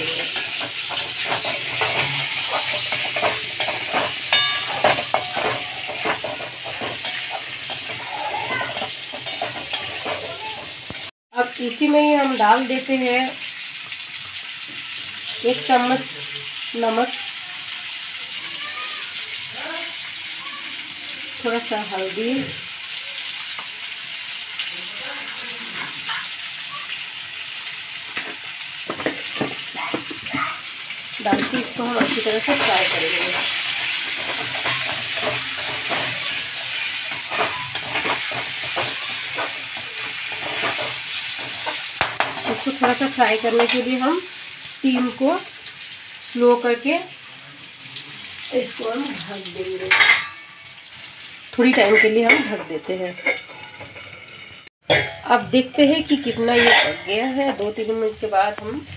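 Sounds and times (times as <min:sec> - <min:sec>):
metal spatula scraping wok: 0:00.0 - 0:11.1, 0:31.1 - 0:45.8, 0:48.3 - 0:57.9
potatoes sizzling in oil: 0:00.0 - 0:58.9
spatula metallic ring: 0:02.0 - 0:06.1.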